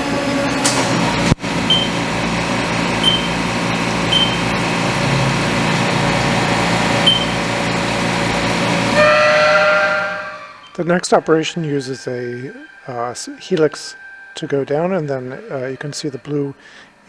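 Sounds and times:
milling machine cutting with coolant: 0.0 - 9.0
short high beeps: 3.0 - 3.4, 4.1 - 4.4, 7.0 - 7.4.

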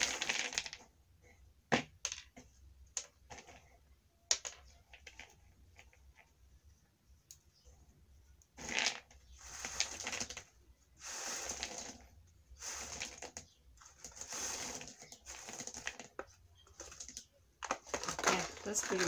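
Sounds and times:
peanuts rattling in plastic bowl: 0.0 - 0.9, 8.6 - 19.0.

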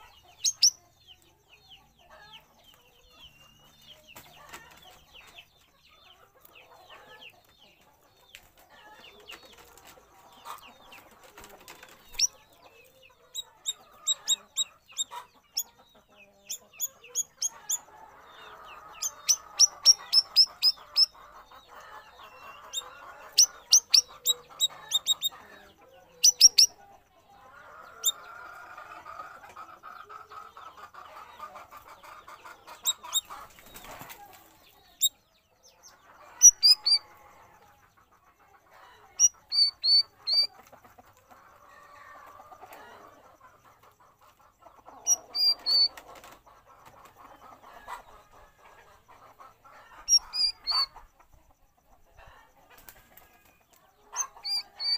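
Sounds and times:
lower bird chattering: 18.4 - 25.5, 36.4 - 37.0, 39.2 - 40.5, 50.0 - 51.1, 54.1 - 54.9.

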